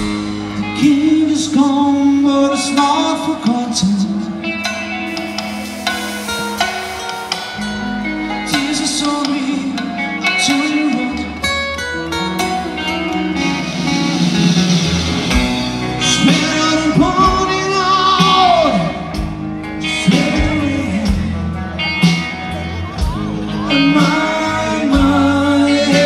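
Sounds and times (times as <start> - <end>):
rock band with electric guitars: 0.0 - 26.0
man singing: 0.5 - 4.7, 8.2 - 11.8, 15.9 - 22.1, 23.0 - 26.0.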